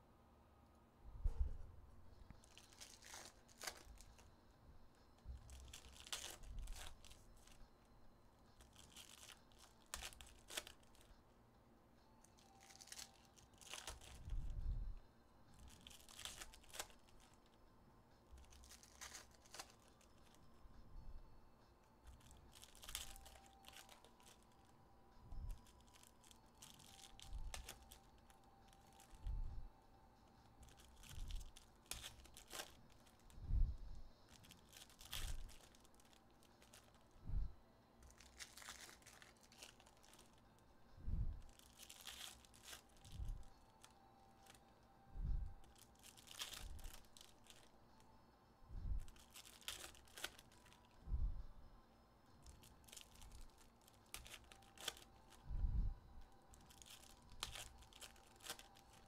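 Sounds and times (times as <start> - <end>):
pack wrappers ripping and crinkling: 2.3 - 4.3, 5.2 - 7.6, 8.6 - 11.1, 12.2 - 14.5, 15.6 - 17.6, 18.3 - 20.4, 22.0 - 24.8, 25.5 - 29.4, 30.4 - 33.4, 34.2 - 37.1, 38.0 - 40.4, 41.4 - 44.7, 45.6 - 47.7, 49.0 - 51.0, 52.4 - 55.4, 56.4 - 59.0.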